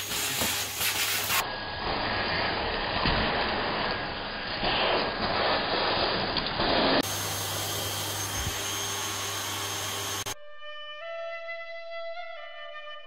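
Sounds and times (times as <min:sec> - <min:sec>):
vacuum cleaner running: 0:00.0 - 0:10.4.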